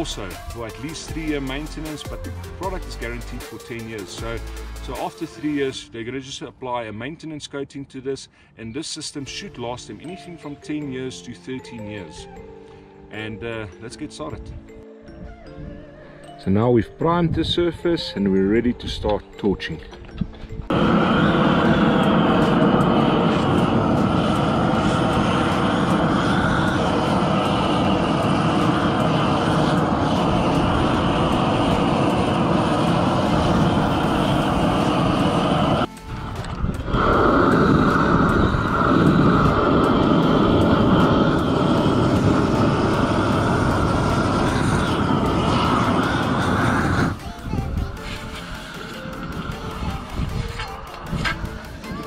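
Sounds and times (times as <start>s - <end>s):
gas torch flame rushing: 20.7s - 52.0s.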